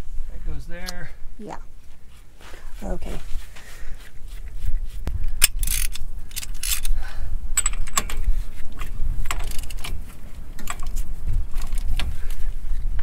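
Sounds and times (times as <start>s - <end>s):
ratchet wrench clicking: 5.4s - 6.9s.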